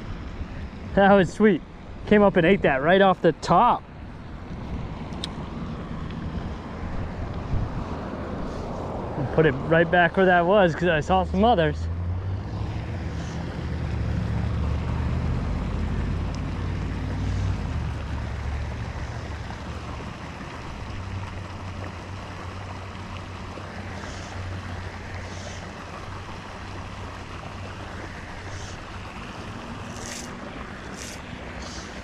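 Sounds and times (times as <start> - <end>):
low engine hum: 0.0 - 32.0
wind noise on microphone: 4.4 - 9.2.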